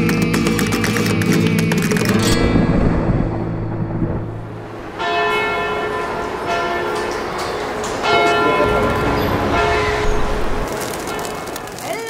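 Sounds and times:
flamenco guitar: 0.0 - 4.1
church bell ringing: 4.4 - 11.6.

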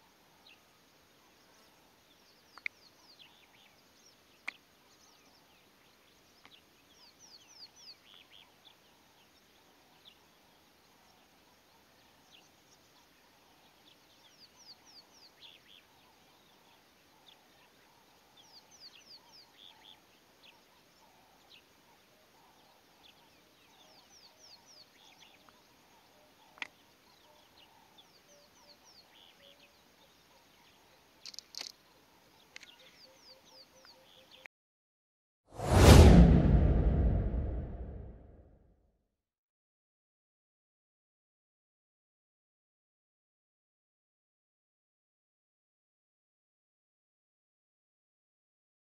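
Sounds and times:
small birds chirping: 0.0 - 34.5.

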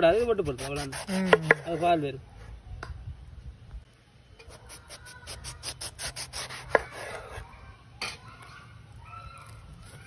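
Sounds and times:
knife scraping skin: 0.1 - 1.9.

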